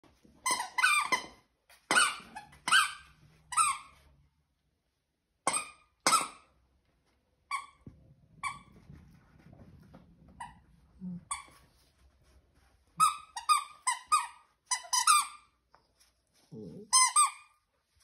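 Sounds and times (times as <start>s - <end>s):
dog toy squeaking: 0.4s - 3.9s, 5.4s - 6.5s, 13.0s - 15.5s.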